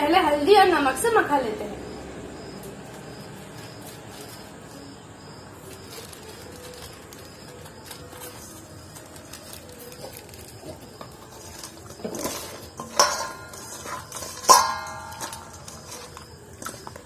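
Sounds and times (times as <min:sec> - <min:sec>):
hands rubbing fish in metal bowl: 0:05.8 - 0:17.0.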